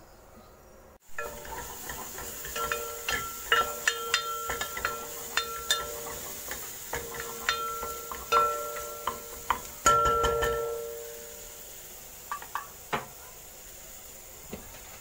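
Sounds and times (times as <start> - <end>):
aromatics sizzling in oil: 1.0 - 15.0
wooden spatula knocking on pot: 1.2 - 11.1.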